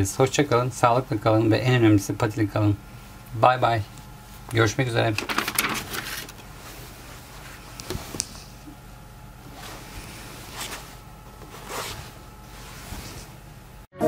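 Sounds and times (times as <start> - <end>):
satin fabric rustling: 6.0 - 13.9.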